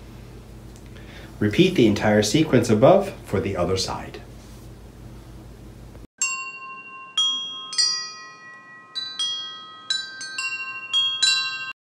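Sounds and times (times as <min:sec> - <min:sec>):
wind chimes ringing: 0:06.2 - 0:11.8.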